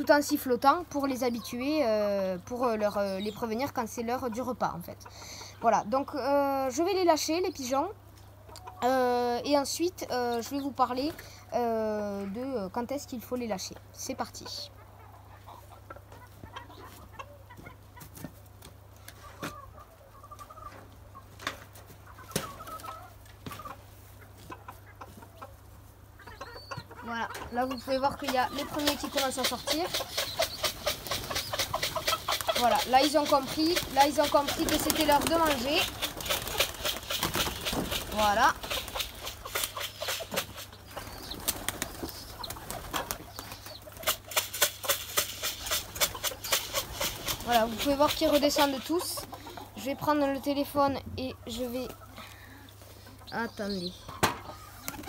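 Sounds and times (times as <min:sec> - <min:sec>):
hens clucking: 0:00.0 - 0:55.0
pigeon wings flapping: 0:28.6 - 0:49.0.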